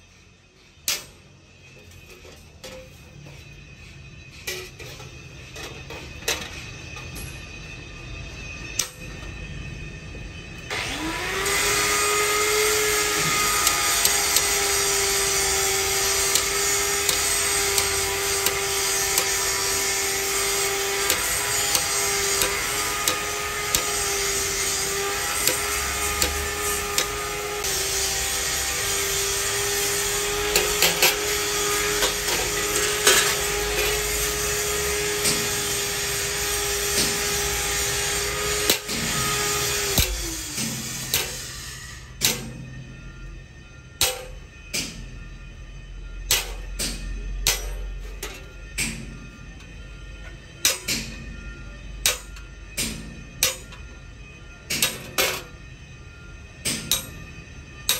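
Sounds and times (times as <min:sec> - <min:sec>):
electric motor whining: 0:10.6 - 0:43.4
hammer tapping steel punch: 0:13.1 - 0:27.7, 0:42.2 - 0:42.8, 0:44.0 - 0:45.0, 0:46.3 - 0:49.1, 0:50.6 - 0:51.2, 0:52.0 - 0:53.9, 0:56.7 - 0:57.3.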